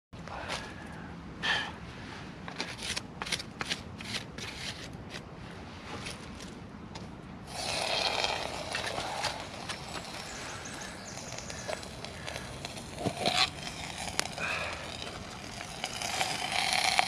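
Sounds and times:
scratchy rustling: 7.5 - 17.0
tin can scraping: 7.5 - 17.0.

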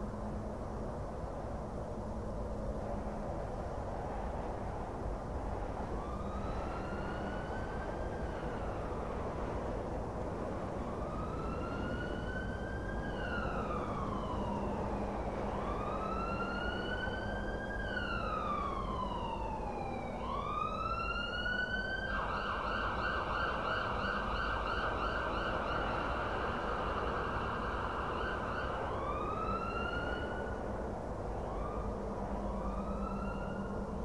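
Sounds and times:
steady background noise: 0.0 - 34.0
emergency vehicle siren: 5.3 - 34.0.

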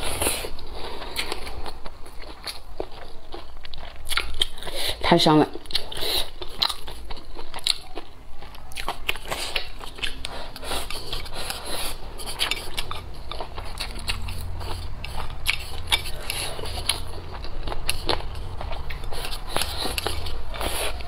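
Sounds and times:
person chewing with wet clicks: 0.0 - 21.0.

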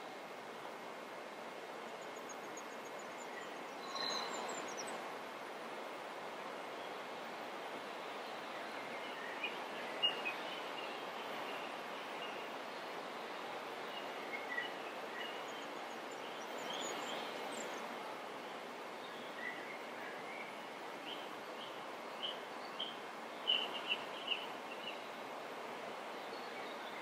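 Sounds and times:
background hiss: 0.0 - 27.0
faint bird chirps: 2.0 - 5.0, 19.0 - 25.2.

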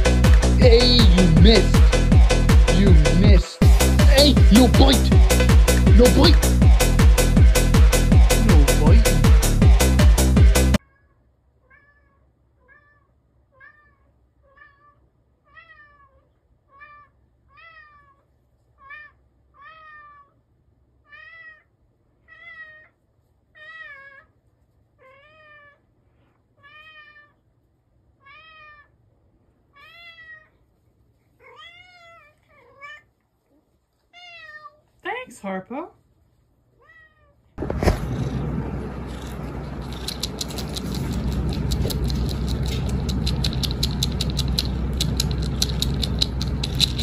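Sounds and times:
loud electronic music: 0.0 - 10.8
cat meowing: 10.8 - 20.4, 21.0 - 23.0, 23.6 - 24.3, 25.0 - 25.9, 26.6 - 27.4, 28.2 - 29.0, 29.7 - 30.6, 31.4 - 33.2, 34.1 - 34.8, 36.8 - 37.4.

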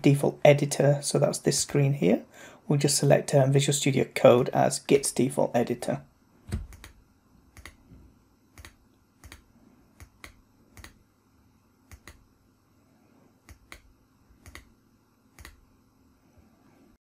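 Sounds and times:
computer mouse button clicking: 6.5 - 7.8, 8.6 - 11.0, 11.9 - 12.2, 13.4 - 14.7, 15.4 - 15.6.

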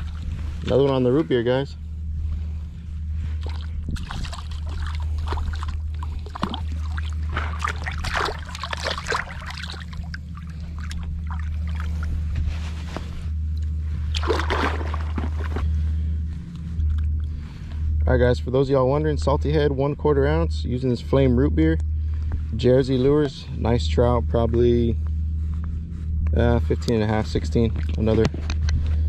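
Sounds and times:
water splashing and sloshing: 0.0 - 1.0, 3.1 - 16.2, 27.7 - 28.1
low wind rumble on microphone: 0.0 - 29.0.

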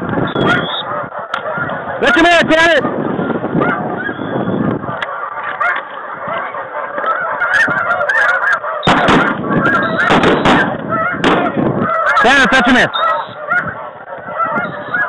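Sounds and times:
snow geese honking: 0.0 - 15.0.

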